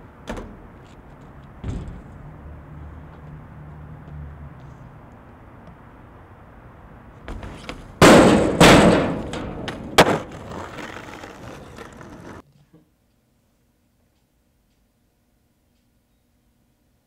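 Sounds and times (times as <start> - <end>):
skateboard wheels rolling on pavement: 0.0 - 12.4
skateboard smacking on asphalt: 7.3 - 12.4.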